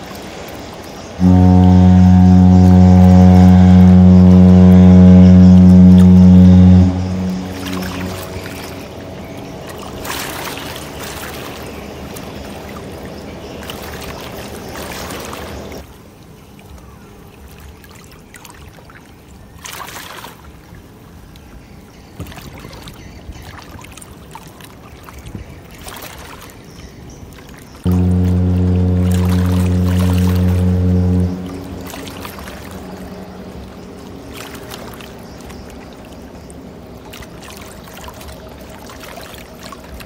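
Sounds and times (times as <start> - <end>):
water rushing and splashing: 0.0 - 40.0
low steady rumble: 1.2 - 10.0, 27.9 - 37.8.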